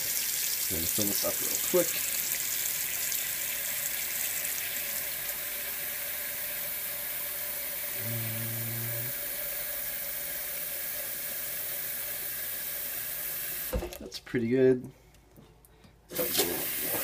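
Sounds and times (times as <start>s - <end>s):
faucet running into metal pot: 0.0s - 8.0s, 16.1s - 17.0s.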